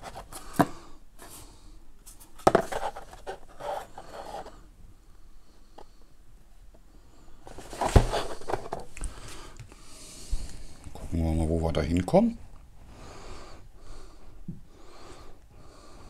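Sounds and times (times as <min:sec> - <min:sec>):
cardboard and paper rustling: 0:02.1 - 0:04.6, 0:07.5 - 0:08.9.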